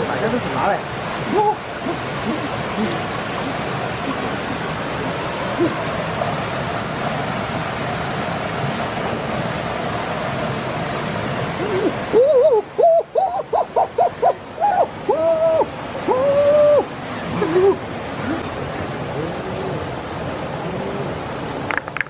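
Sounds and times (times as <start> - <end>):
stream water running over rocks: 0.0 - 22.0.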